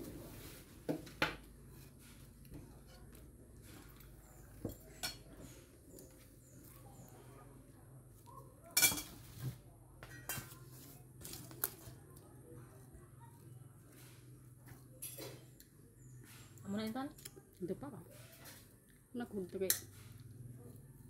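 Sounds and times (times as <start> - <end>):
metal spoon clinking ceramic bowl: 8.8 - 9.2.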